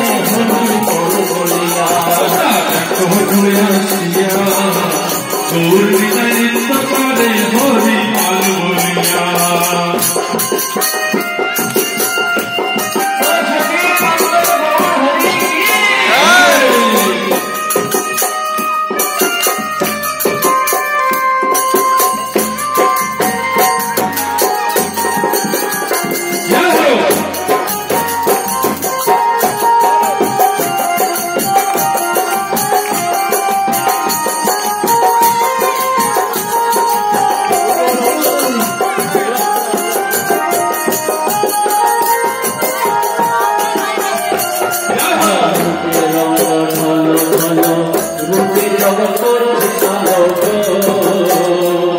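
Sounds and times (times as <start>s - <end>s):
sustained melodic notes: 0.0s - 50.8s
hand cymbals jingling: 0.0s - 51.9s
rising and falling pitch glides: 14.8s - 18.0s.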